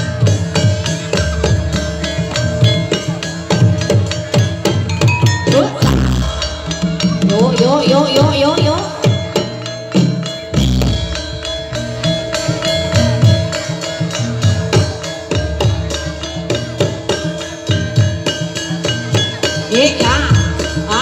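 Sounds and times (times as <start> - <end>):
drums: 0.0 - 21.0
tuned metal percussion: 0.0 - 21.0
sustained ringing tone: 4.6 - 14.3.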